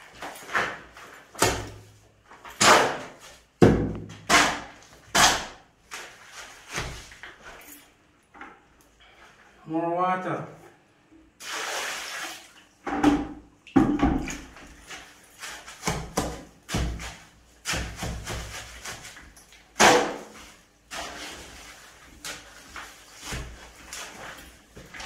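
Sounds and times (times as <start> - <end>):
water poured from a bucket: 11.4 - 12.7.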